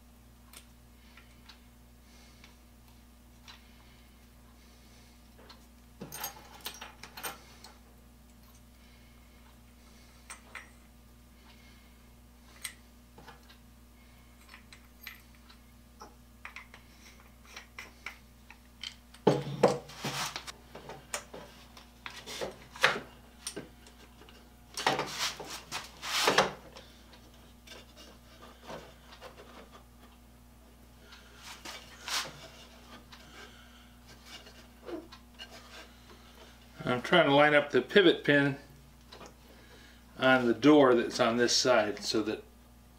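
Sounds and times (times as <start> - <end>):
wood rubbing and scraping: 24.9 - 26.5, 31.4 - 33.4, 34.1 - 36.4.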